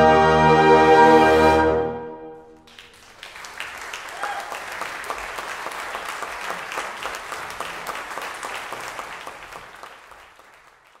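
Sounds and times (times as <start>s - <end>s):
audience applauding: 2.6s - 11.0s.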